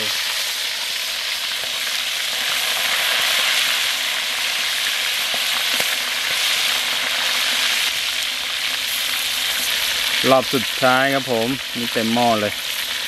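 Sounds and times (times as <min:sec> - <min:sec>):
frogs sizzling in hot oil: 0:00.0 - 0:13.0.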